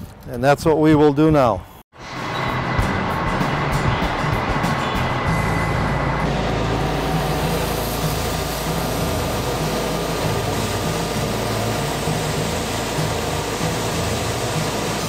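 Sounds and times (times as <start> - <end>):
low machine drone: 2.0 - 15.0
grain rushing through hose: 6.7 - 15.0.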